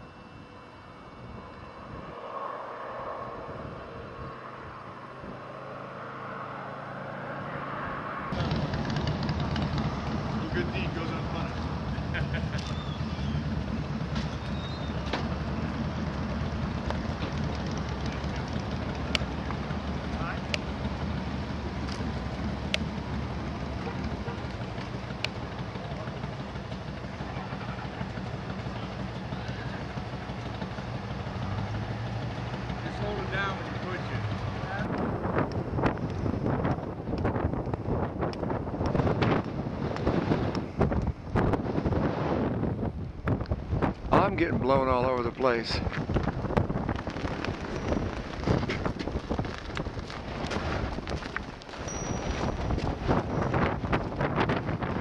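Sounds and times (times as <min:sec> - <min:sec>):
low engine hum: 0:00.0 - 0:55.0
vehicle tyre noise: 0:00.0 - 0:55.0.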